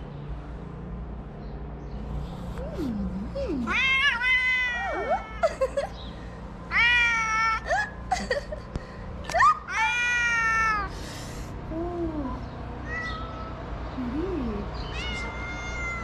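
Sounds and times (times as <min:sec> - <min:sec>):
cat meowing: 0:03.6 - 0:05.5, 0:06.7 - 0:07.7, 0:09.7 - 0:10.9, 0:12.8 - 0:13.6, 0:14.8 - 0:16.0.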